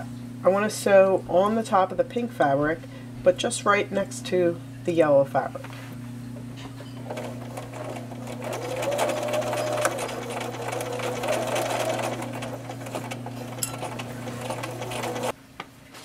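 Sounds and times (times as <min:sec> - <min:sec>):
sewing machine stitching: 0:07.0 - 0:15.3.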